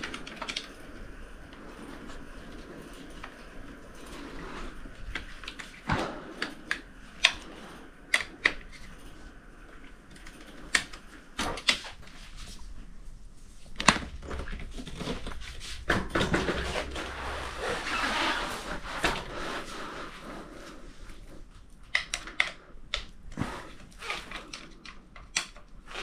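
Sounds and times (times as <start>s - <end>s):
bike handling rustling and knocking: 13.6s - 19.7s.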